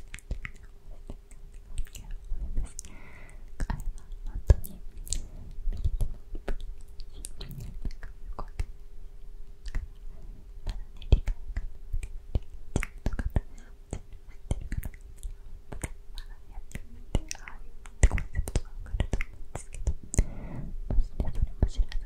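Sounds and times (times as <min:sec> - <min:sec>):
wet mouth clicks and lip smacks: 0:00.0 - 0:02.9, 0:03.5 - 0:08.7, 0:09.6 - 0:10.0, 0:10.6 - 0:20.3
person whispering: 0:01.9 - 0:02.9, 0:03.6 - 0:06.0, 0:07.0 - 0:08.6, 0:16.1 - 0:22.0.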